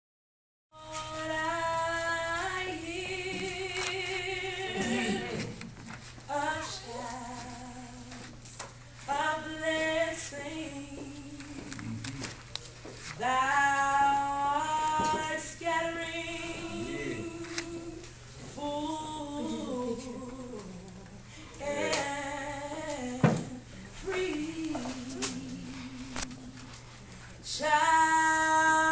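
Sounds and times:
woman singing unaccompanied: 0.8 - 5.6, 6.3 - 8.4, 9.1 - 12.1, 13.2 - 26.8, 27.4 - 28.9.

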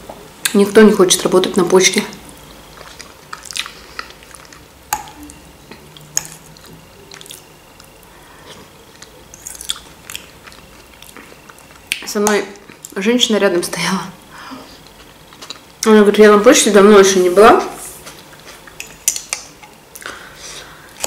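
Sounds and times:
wet chewing sounds: 2.3 - 13.0, 14.8 - 15.8, 18.0 - 20.2.

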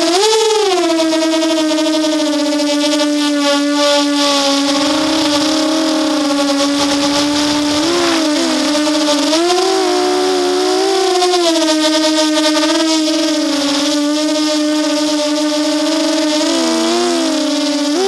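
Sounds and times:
quadcopter motors whining: 4.3 - 10.9
rush of air: 4.4 - 10.1.

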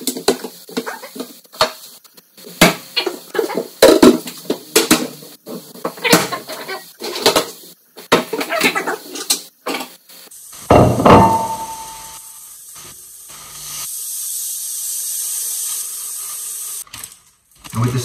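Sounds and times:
steak sizzling in pan: 0.0 - 18.0
loud knock with ringing: 10.7 - 12.2.

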